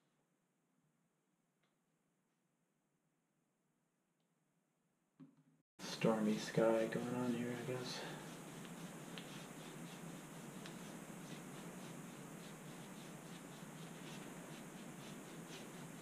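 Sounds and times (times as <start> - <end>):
paintbrush stroking on canvas: 5.8 - 16.0.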